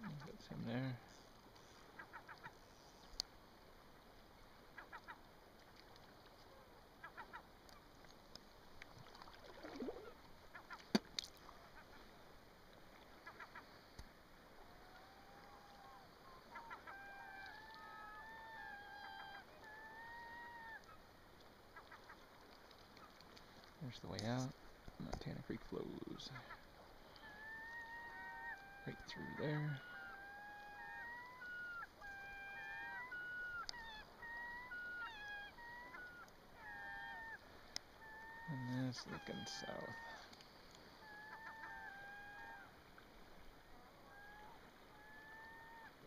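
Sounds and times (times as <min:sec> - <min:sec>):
gulls calling: 0:14.6 - 0:21.0, 0:25.8 - 0:46.0.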